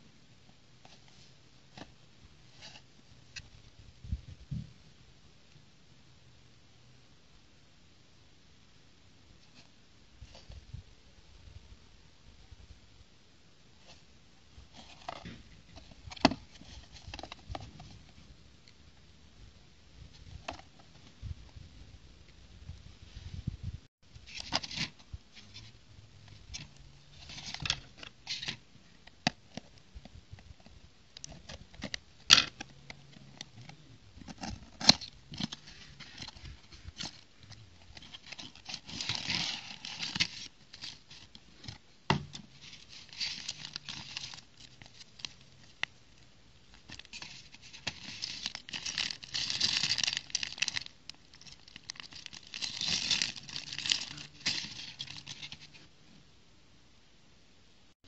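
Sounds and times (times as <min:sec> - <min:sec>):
plastic bags crinkling: 0:37.8 - 0:41.4, 0:42.5 - 0:45.9, 0:46.7 - 0:55.8
cardboard box handled: 0:51.5 - 0:55.7.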